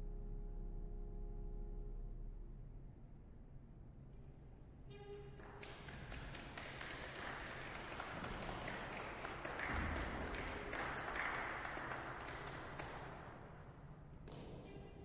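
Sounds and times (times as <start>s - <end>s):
audience applauding: 5.4s - 13.2s.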